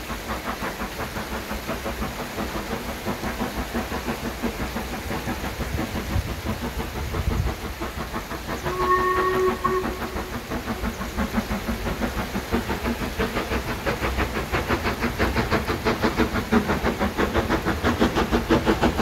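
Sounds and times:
steam locomotive rhythmic beat: 0.0s - 19.0s
steam whistle blast: 8.7s - 10.5s.

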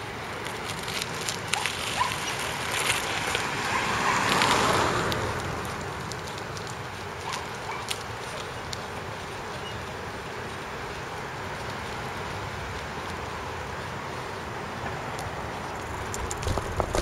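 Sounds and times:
car passing: 0.0s - 17.0s
bicycle rattling clicks: 0.4s - 9.6s, 15.1s - 17.0s
wind rushing over microphone: 15.0s - 17.0s.

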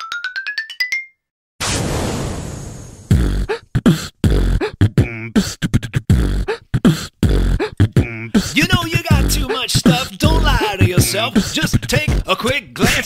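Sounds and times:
beatboxed hip-hop beat: 3.1s - 13.0s
wobbling vocal effect: 7.2s - 11.4s.

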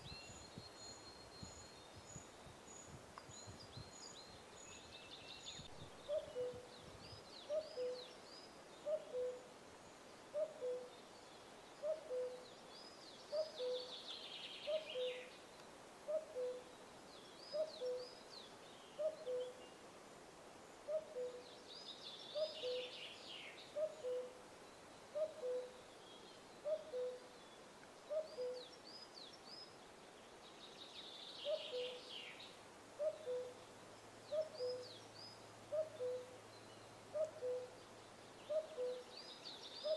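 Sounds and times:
grouse display song: 3.2s - 9.5s, 10.3s - 11.2s, 11.8s - 16.7s, 25.1s - 33.6s, 34.2s - 39.9s.

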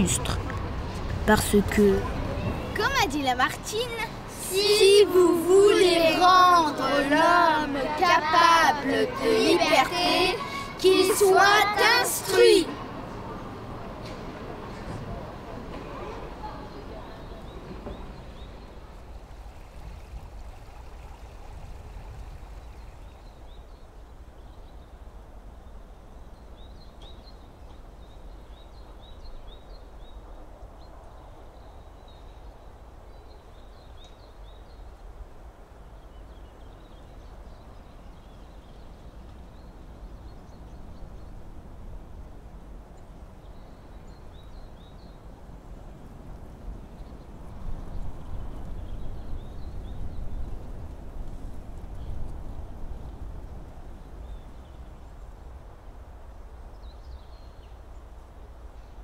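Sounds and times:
low rumble and hiss: 0.0s - 59.0s
small birds chirping: 16.3s - 25.0s.

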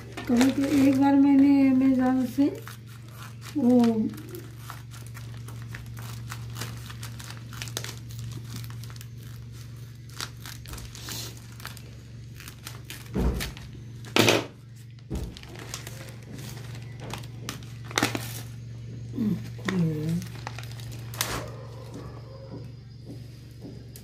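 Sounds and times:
scissors cutting plastic: 0.0s - 14.4s
plastic crinkling: 0.0s - 22.0s.

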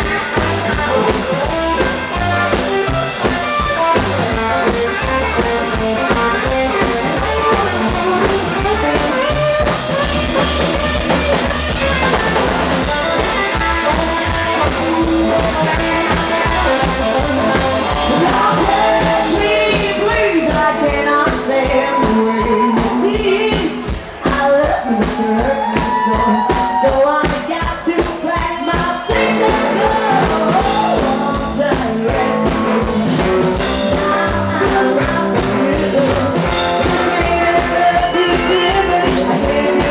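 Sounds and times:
upright bass: 0.0s - 26.6s, 29.0s - 39.9s
drum kit fast beat: 0.0s - 39.9s
electric guitar: 0.0s - 39.9s
woman singing: 17.9s - 39.9s.

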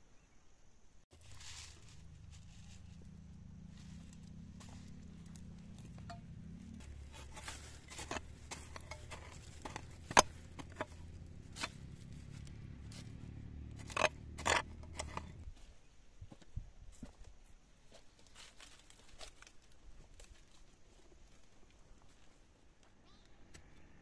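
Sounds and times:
hand hoe scraping stony soil: 1.1s - 15.6s.

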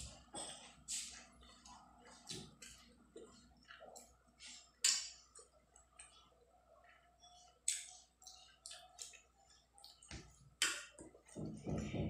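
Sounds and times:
chewing with wet mouth smacks: 0.9s - 4.2s, 7.4s - 11.3s.

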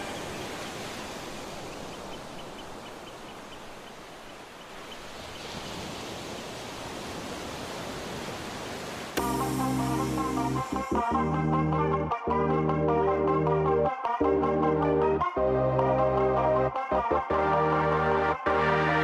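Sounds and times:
steady outdoor noise: 0.0s - 9.4s
music: 9.2s - 19.0s.

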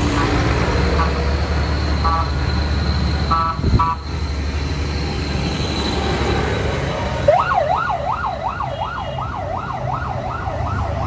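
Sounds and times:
tractor engines rumbling: 0.0s - 11.0s
emergency siren yelping: 7.2s - 11.0s.

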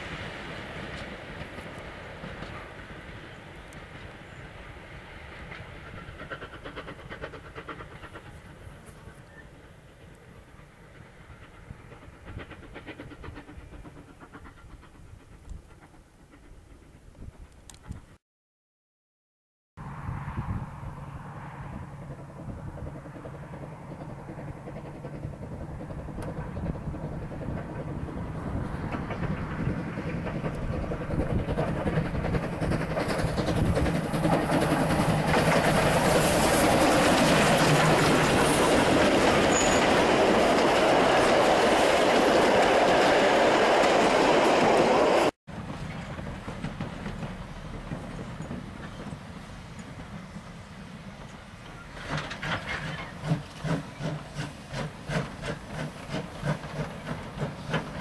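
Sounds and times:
rail clatter: 0.0s - 10.3s, 22.0s - 58.0s
faint steam locomotive chuffing: 0.0s - 18.2s, 21.2s - 58.0s.

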